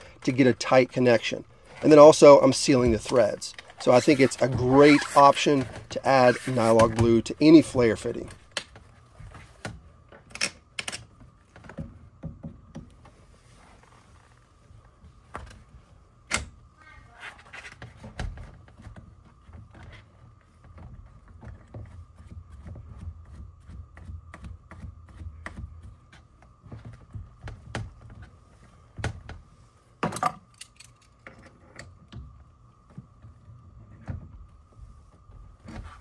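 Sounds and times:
faint steady hum: 0:00.0 - 0:36.0.

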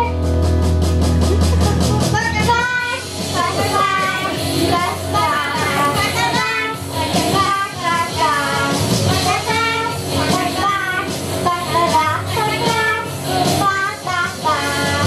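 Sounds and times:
backing music track: 0:00.4 - 0:13.6
girls singing: 0:03.3 - 0:08.2.

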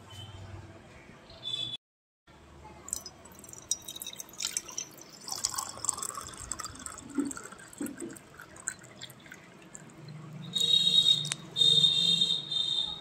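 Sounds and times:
water pouring into metal tumbler: 0:02.9 - 0:10.1.

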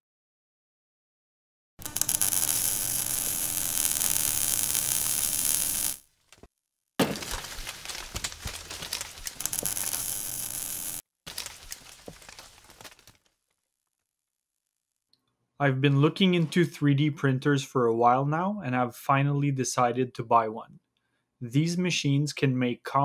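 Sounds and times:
crackling: 0:01.8 - 0:13.5.

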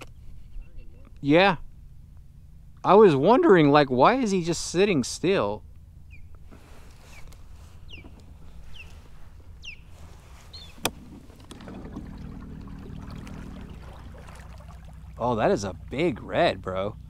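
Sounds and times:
low steady hum: 0:00.0 - 0:17.0
water lapping around kayak: 0:06.4 - 0:17.0.

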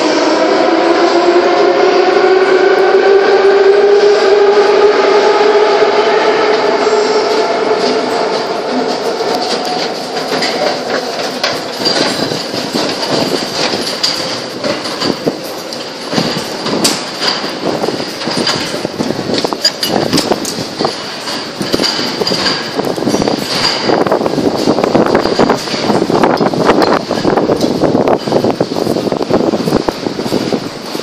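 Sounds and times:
mechanical rumble: 0:06.2 - 0:31.0
footsteps: 0:06.5 - 0:31.0
ticket gates clacking: 0:07.9 - 0:28.8.

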